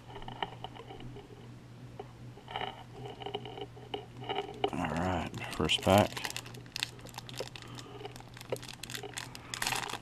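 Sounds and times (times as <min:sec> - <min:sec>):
faint steady hum: 0:00.0 - 0:10.0
trading cards tapping and rustling: 0:02.6 - 0:10.0.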